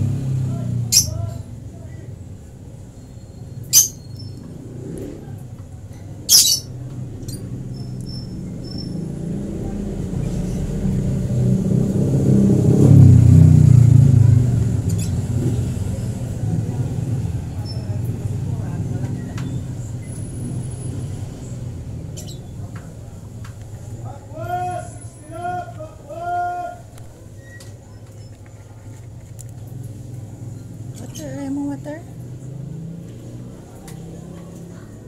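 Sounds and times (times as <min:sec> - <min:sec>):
vehicle engine rumble: 0:00.0 - 0:35.0
baby birds chirping: 0:00.9 - 0:01.3, 0:03.0 - 0:04.4, 0:06.2 - 0:09.1, 0:22.1 - 0:22.6.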